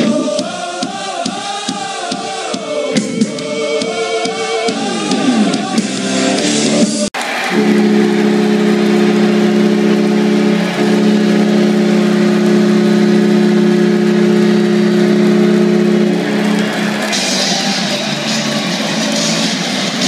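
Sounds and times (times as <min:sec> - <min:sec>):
goal horn blast: 0:07.2 - 0:20.0.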